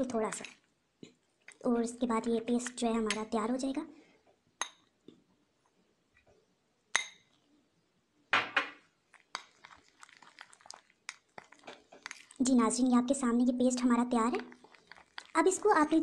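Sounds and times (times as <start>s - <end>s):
spoon stirring thick paste: 0.0s - 3.8s, 9.0s - 16.0s
spoon clinking against bowl: 7.0s - 7.3s.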